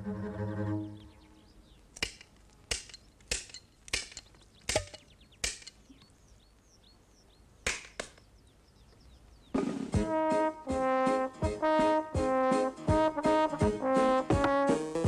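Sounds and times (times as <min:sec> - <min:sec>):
sharp wooden knocks: 0:02.0 - 0:05.8, 0:07.6 - 0:08.3.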